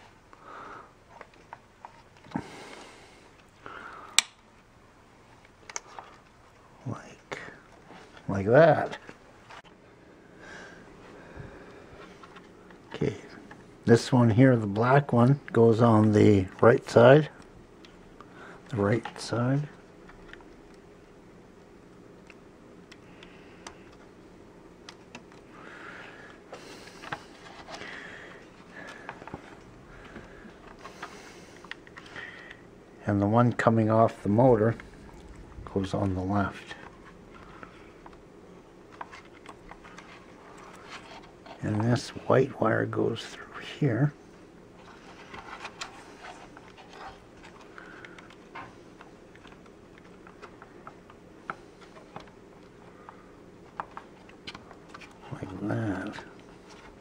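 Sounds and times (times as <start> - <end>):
rubbing and rustling: 38.8 - 42.2, 44.7 - 57.0.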